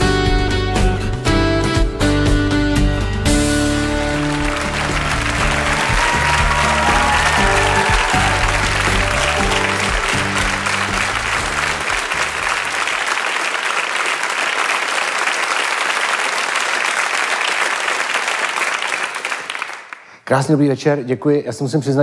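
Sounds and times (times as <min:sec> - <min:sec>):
music with bass line: 0:00.0 - 0:12.6
audience applauding: 0:03.6 - 0:20.2.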